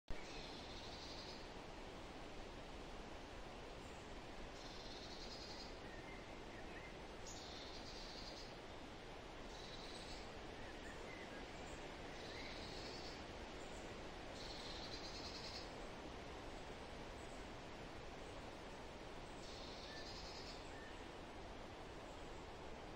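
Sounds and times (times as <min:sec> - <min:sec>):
steady hiss: 0:00.2 - 0:22.9.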